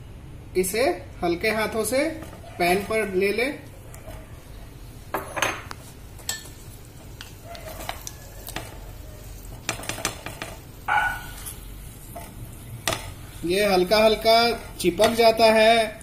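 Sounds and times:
faint sizzle: 0.0 - 16.0
spatula scraping in a pan: 5.7 - 15.4.

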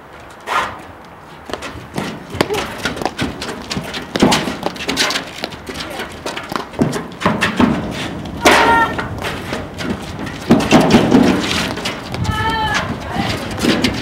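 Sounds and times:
footfalls on court deck: 1.4 - 14.0
paddles striking ball: 1.5 - 12.3.

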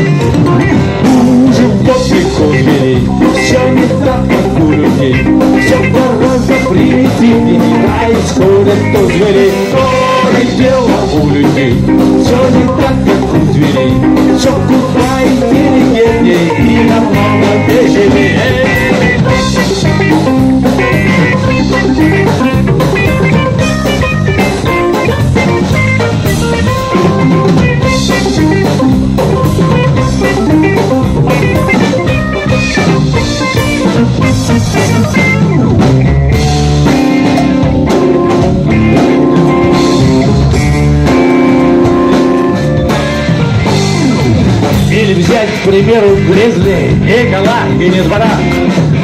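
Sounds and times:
drum kit: 0.0 - 49.0
electric guitar: 0.0 - 49.0
synthesizer keyboards: 13.9 - 44.9.

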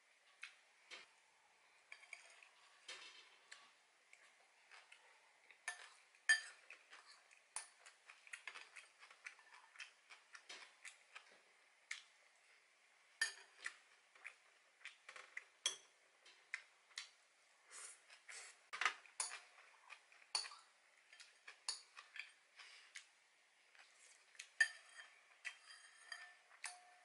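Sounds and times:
utensils clinking against ceramic bowl: 5.6 - 9.4, 19.2 - 19.7, 24.6 - 27.0.

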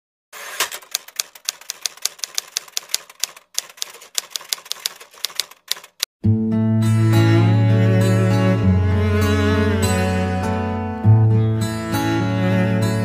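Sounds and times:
typewriter keystroke clicks: 0.5 - 6.1
low bowed-string music: 6.2 - 13.0.

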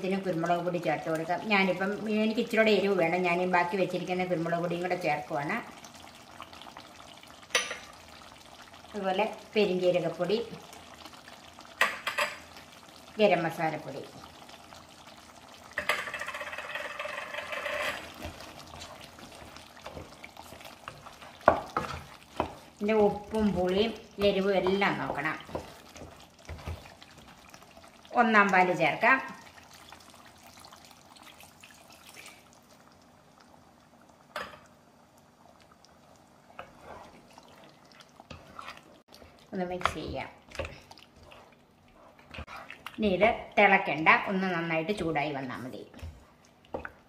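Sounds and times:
gravy sizzling in a pan: 0.0 - 47.0
liquid pouring into pan: 14.2 - 22.8, 29.4 - 39.5
wooden spoon stirring: 15.8 - 32.4, 36.5 - 43.7.

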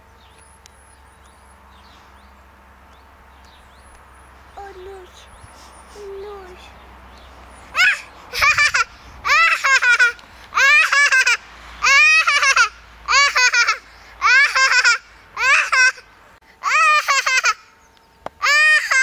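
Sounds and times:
toddler laughing: 7.7 - 17.7, 18.4 - 19.0.

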